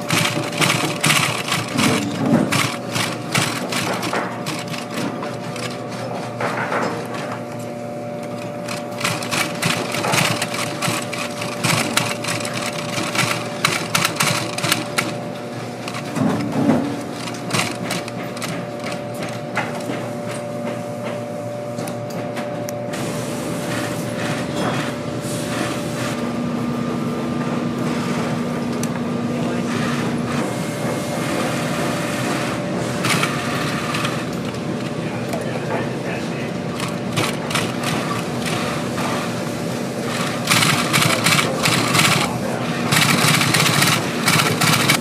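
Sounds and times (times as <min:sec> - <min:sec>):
sewing machine motor humming: 0:00.0 - 0:06.4, 0:08.1 - 0:20.4, 0:31.2 - 0:35.8, 0:36.6 - 0:39.4, 0:40.0 - 0:45.0.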